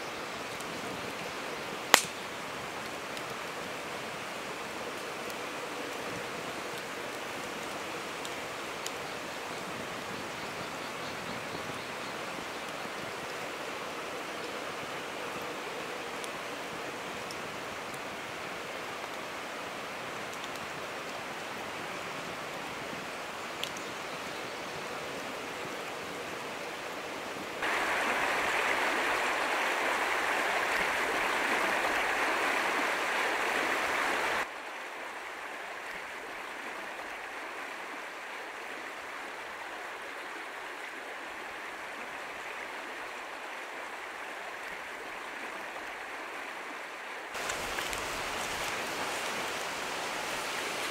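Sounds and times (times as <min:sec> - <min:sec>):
river rushing over gravel: 0:24.8 - 0:50.9.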